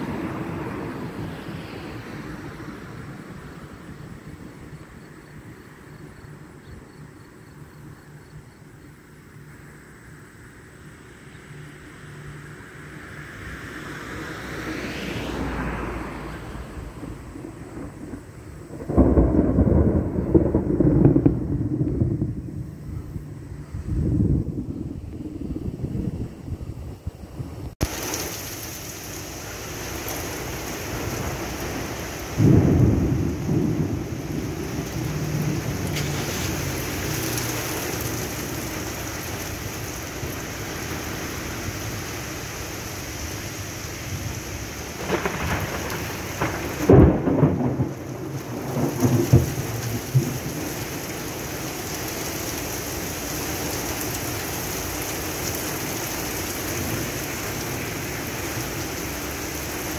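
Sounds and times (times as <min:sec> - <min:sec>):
thunder rumbling and cracking: 0:00.0 - 0:03.2, 0:15.6 - 0:29.2, 0:29.8 - 0:42.4, 0:43.2 - 0:54.8
heavy rain: 0:00.0 - 0:59.9.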